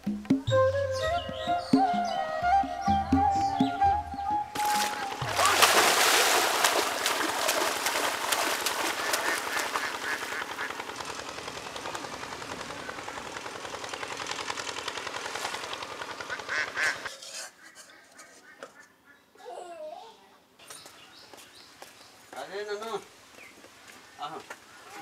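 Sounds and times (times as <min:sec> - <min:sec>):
water splashing from swimming: 0:04.6 - 0:10.7.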